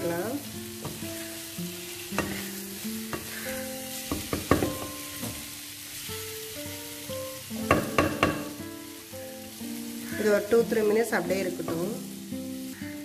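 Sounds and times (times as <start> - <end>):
soft background music: 0.0 - 13.0
spatula scraping sizzling pan: 0.0 - 13.0
spatula knocking on pan: 2.1 - 2.5, 4.0 - 5.5, 7.6 - 8.6.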